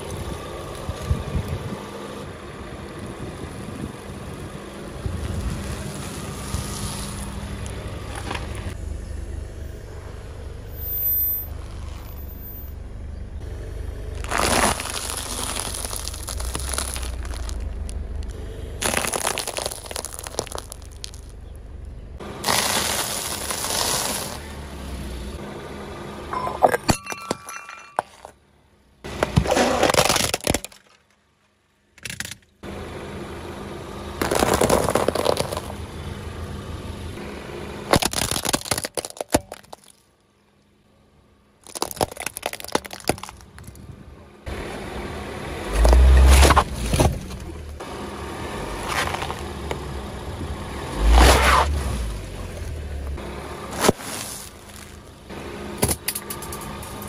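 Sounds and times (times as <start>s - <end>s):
tyre grinding on road: 3.6s - 8.8s, 10.6s - 12.7s, 13.4s - 28.4s, 29.0s - 31.0s, 34.1s - 40.0s, 41.6s - 57.0s
plastic and ceramic crunching: 14.2s - 21.4s, 26.4s - 28.4s, 29.1s - 31.2s, 34.2s - 35.8s, 37.9s - 40.1s, 41.6s - 43.8s, 48.8s - 49.8s.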